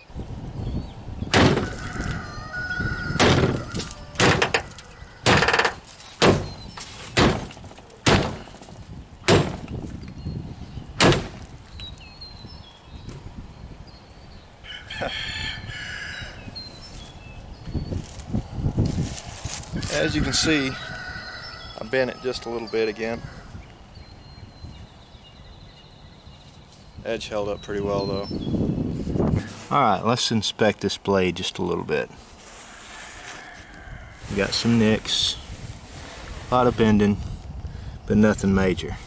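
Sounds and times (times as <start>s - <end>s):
sword striking a car door: 1.3s - 1.8s, 3.2s - 3.6s, 4.2s - 8.5s, 9.3s - 9.7s, 11.0s - 11.4s
rooster crowing: 1.6s - 5.4s, 14.6s - 16.5s, 19.8s - 23.6s, 32.6s - 34.4s.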